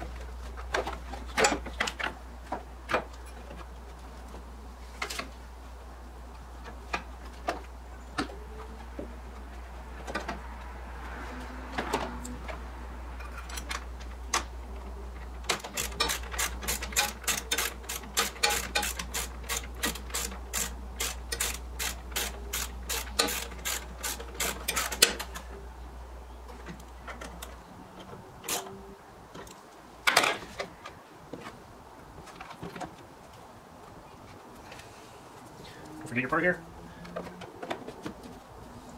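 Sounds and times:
hand ratchet clicking: 0:15.5 - 0:25.2.

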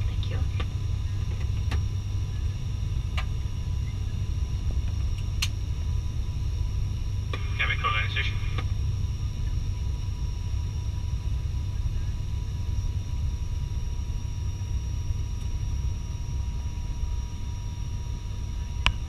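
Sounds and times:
thin constant whines: 0:00.0 - 0:19.0
turboprop engine drone: 0:00.0 - 0:19.0.

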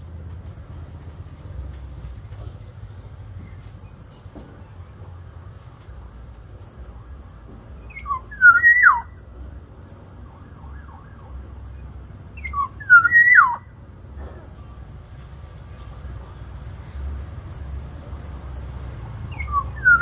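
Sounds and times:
bird fluty whistled call: 0:07.8 - 0:09.2, 0:12.4 - 0:13.7, 0:19.3 - 0:20.0.

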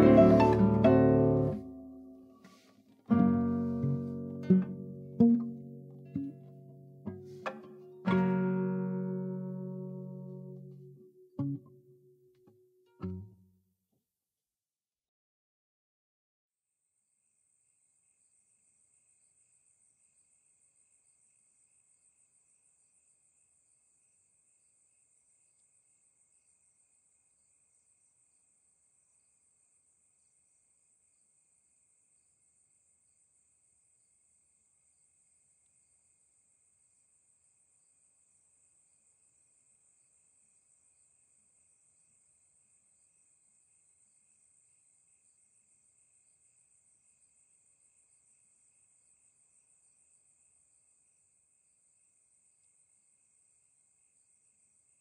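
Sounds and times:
faint crickets chirping: 0:00.0 - 0:13.4, 0:16.6 - 0:55.0.

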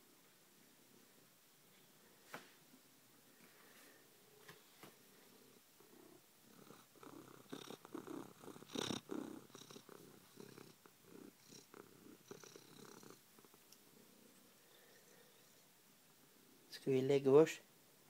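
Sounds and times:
cat purring: 0:04.3 - 0:16.7.

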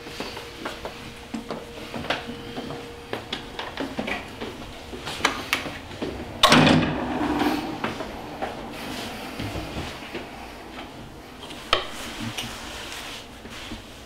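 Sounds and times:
light footsteps: 0:00.0 - 0:06.4, 0:07.0 - 0:14.0
door opening with loud clatter: 0:05.5 - 0:08.7.

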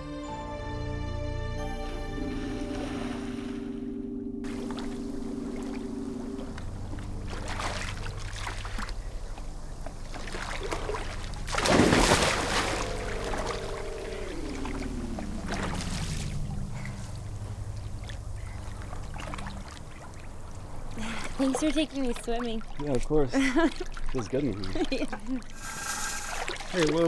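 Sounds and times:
film score drone: 0:00.0 - 0:21.8
swimmer plunging into pool: 0:02.1 - 0:20.2
muffled underwater sounds: 0:02.3 - 0:11.5, 0:12.2 - 0:21.0.

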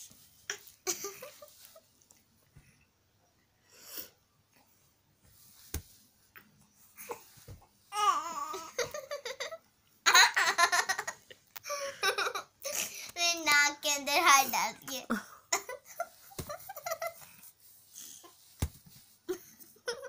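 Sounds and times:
child laughing: 0:08.5 - 0:12.9.

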